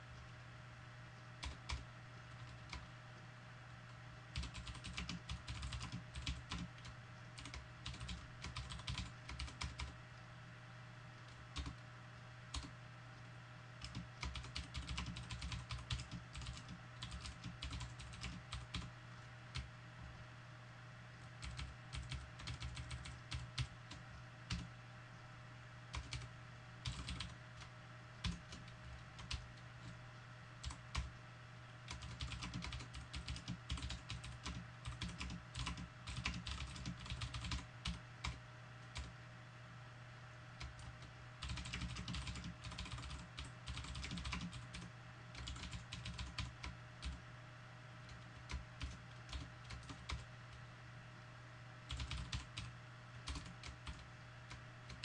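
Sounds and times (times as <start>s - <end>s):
steady low hum: 0.0s - 55.0s
typing on a computer keyboard: 1.4s - 2.9s, 4.3s - 10.0s, 11.3s - 11.8s, 12.5s - 12.8s, 13.8s - 18.9s, 21.2s - 24.7s, 25.9s - 30.0s, 30.6s - 31.1s, 31.9s - 39.1s, 40.6s - 47.2s, 48.1s - 50.6s, 51.9s - 55.0s.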